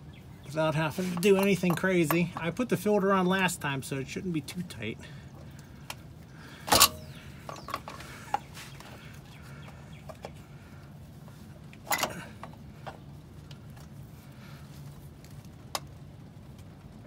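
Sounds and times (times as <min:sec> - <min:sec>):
wrench clanking on oil filter: 0:01.0 - 0:02.6, 0:06.6 - 0:08.0, 0:11.8 - 0:12.6.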